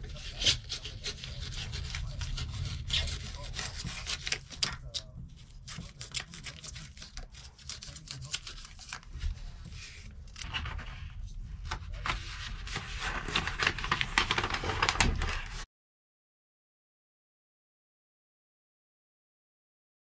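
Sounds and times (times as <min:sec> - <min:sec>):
scratchy rustling of sheet: 0:05.6 - 0:15.6.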